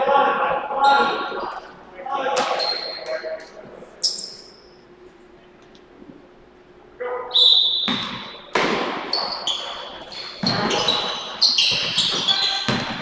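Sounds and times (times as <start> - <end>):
sneakers squeaking: 0.8 - 1.7, 2.4 - 4.8, 7.3 - 13.0
basketball bouncing on hardwood: 11.7 - 13.0.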